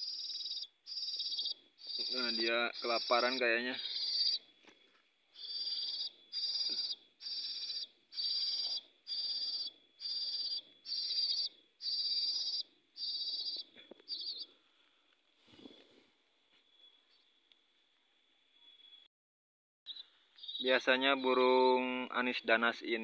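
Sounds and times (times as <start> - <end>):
nestlings begging calls: 0.0 - 4.4, 5.3 - 14.5, 19.9 - 21.6.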